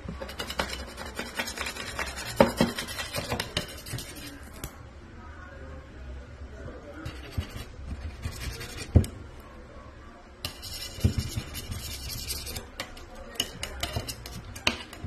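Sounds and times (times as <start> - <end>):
metal scraper rasping on wood: 0.2 - 4.4, 10.5 - 15.0.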